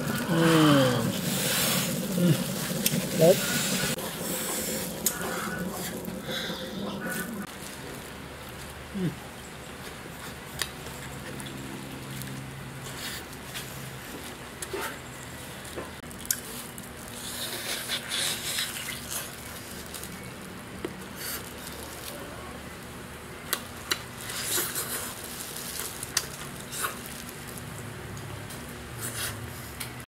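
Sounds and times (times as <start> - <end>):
man eating with mouth noises: 0.0 - 7.5, 8.6 - 9.3, 15.8 - 20.3, 23.5 - 27.7.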